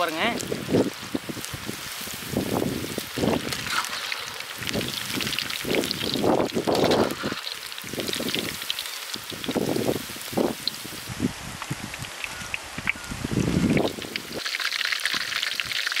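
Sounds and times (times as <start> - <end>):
oil sizzling and crackling: 0.0 - 16.0
skimmer scraping pan: 6.7 - 7.7.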